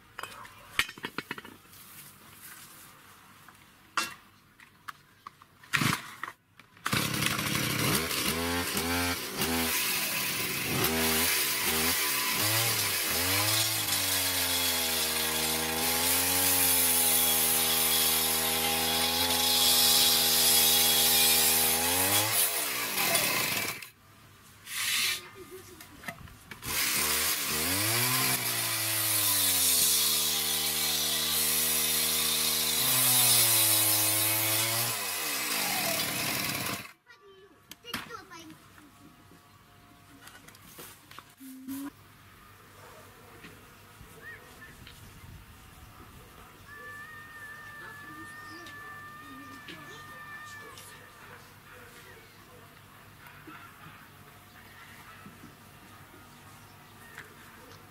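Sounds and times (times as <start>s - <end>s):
two-stroke engine revving: 6.9s - 23.9s, 26.6s - 36.9s.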